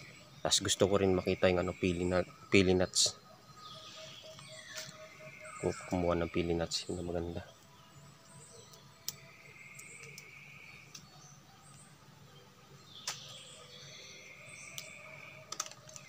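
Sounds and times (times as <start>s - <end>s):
clicks and rustles in branches: 14.7s - 16.0s.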